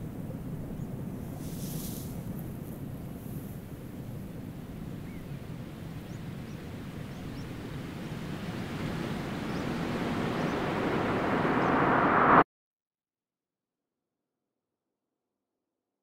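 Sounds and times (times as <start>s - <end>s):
rushing wind-like noise: 0.0s - 12.4s.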